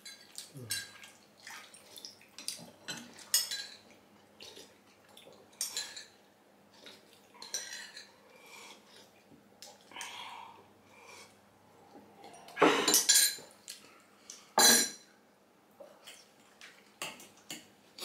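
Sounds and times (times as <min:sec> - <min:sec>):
spoons clinking against bowls: 0:07.4 - 0:08.1.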